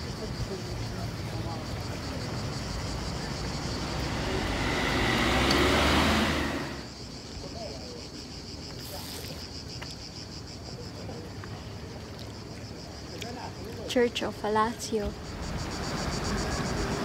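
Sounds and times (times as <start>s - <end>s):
cicadas buzzing: 0.0s - 17.0s
car passing: 1.1s - 6.9s, 15.1s - 17.0s.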